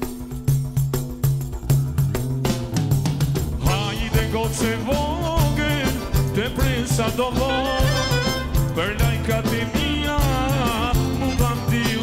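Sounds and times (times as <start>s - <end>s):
bass: 0.0s - 12.0s
frame drum beat: 0.0s - 12.0s
accordion: 3.6s - 12.0s
man singing: 3.6s - 12.0s.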